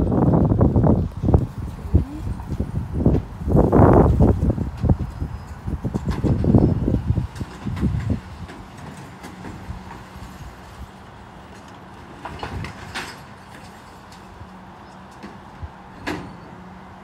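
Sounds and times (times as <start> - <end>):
garbage truck humming: 0.0 - 17.0
wheelie bins clattering and knocking: 5.6 - 10.8, 11.5 - 16.8.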